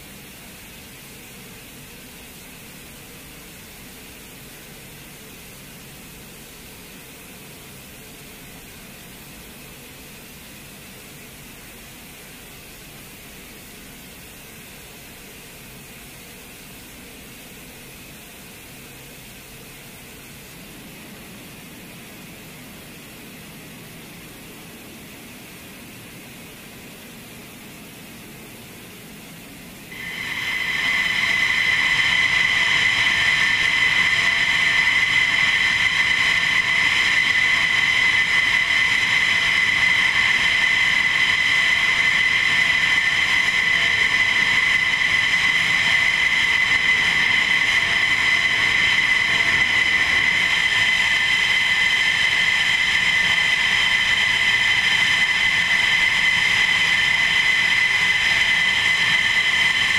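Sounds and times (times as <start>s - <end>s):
jet turbines idling: 29.9s - 59.9s.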